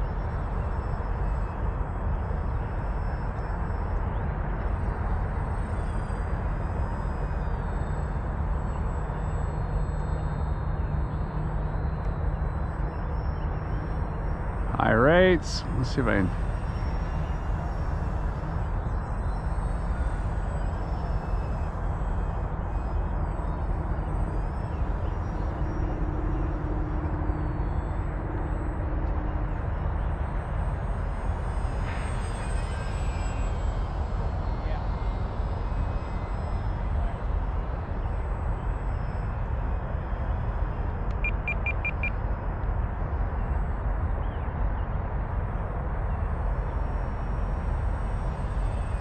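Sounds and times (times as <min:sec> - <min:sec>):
model plane motor whining: 0:00.0 - 0:42.1, 0:45.6 - 0:49.0
short high beeps: 0:41.2 - 0:42.1.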